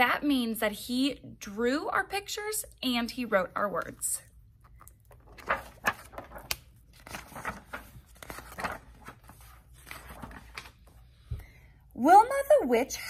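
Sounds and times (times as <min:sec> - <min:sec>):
book pages turning: 0:04.6 - 0:11.2.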